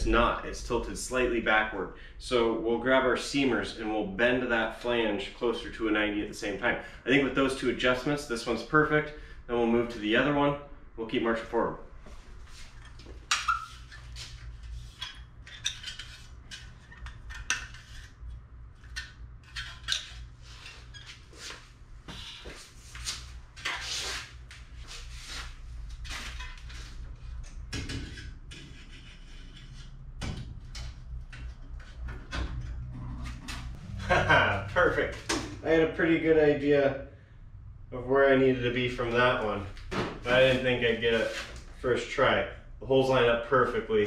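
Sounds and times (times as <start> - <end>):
low steady hum: 0.0 - 13.3, 24.4 - 44.0
metallic clinks and scrapes of tools: 12.6 - 18.2.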